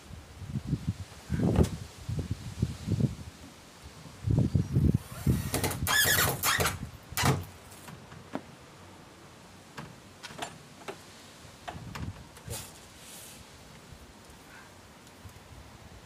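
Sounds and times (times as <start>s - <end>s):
wind buffeting microphone: 0.1s - 3.4s, 4.0s - 7.2s, 11.7s - 12.4s
metal latch squealing and scraping: 5.3s - 7.4s.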